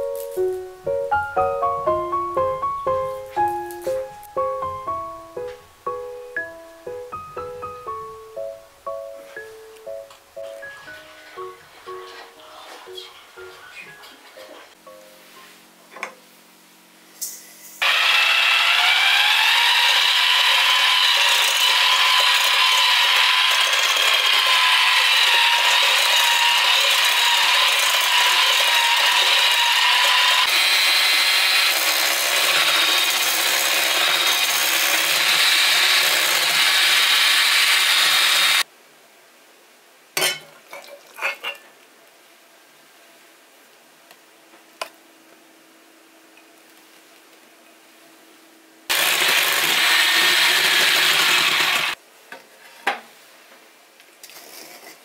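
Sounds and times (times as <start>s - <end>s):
small electric motor whining: 17.8s - 38.6s, 48.9s - 52.0s.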